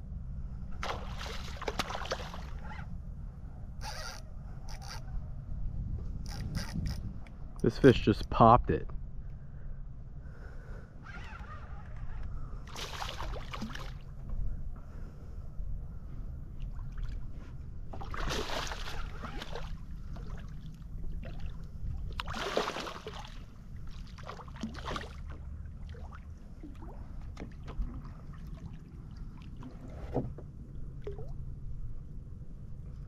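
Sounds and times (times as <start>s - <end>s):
steady low rumble: 0.0s - 33.0s
water splashing: 0.8s - 2.7s, 12.7s - 14.0s, 17.9s - 29.9s.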